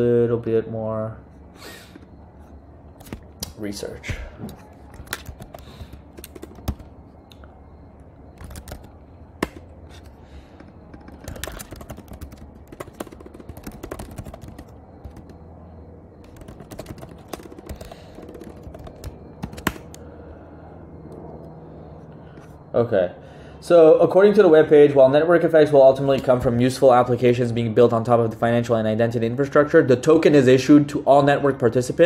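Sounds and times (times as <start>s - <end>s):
keyboard key clicks: 4.9s - 6.9s, 16.2s - 20.0s.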